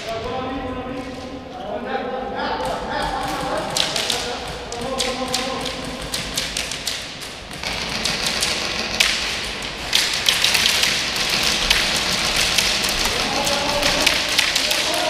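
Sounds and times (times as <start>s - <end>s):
airsoft guns firing: 3.1s - 15.0s.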